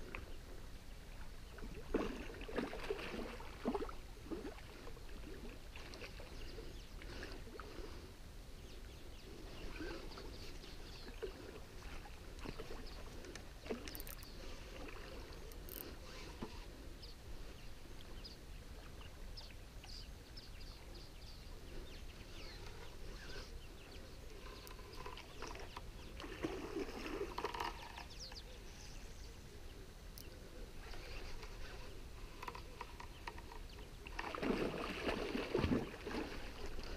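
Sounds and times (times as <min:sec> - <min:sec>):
rod splashing in water: 0:34.1 - 0:36.7.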